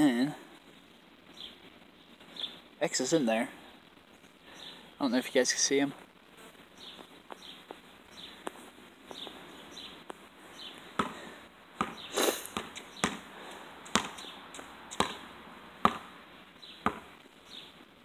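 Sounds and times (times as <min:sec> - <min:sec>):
basketball bouncing on concrete: 0:11.0 - 0:11.2, 0:11.8 - 0:15.2, 0:15.8 - 0:16.1, 0:16.8 - 0:17.1.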